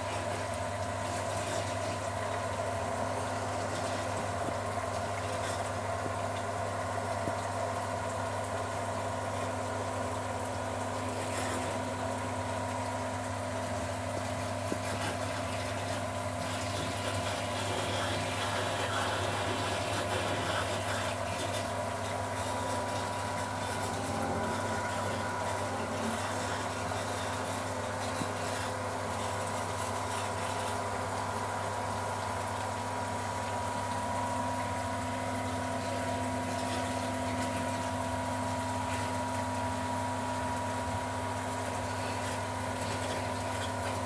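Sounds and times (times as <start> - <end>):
low mechanical drone: 8.9 - 44.0.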